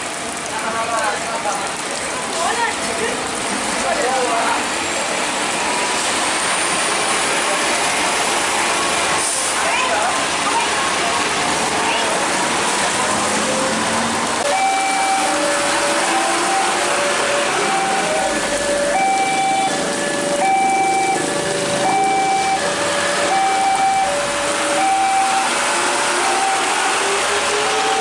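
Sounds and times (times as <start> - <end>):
rain: 0.0 - 28.0
traffic hiss on wet road: 0.0 - 28.0
truck engine passing: 11.4 - 28.0
two-tone level crossing alarm: 14.5 - 27.0, 27.6 - 28.0.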